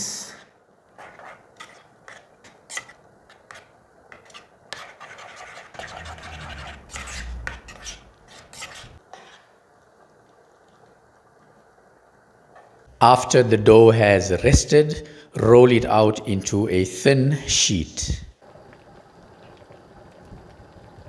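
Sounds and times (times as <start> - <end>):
spoon scraping bowl: 1.0 - 9.5.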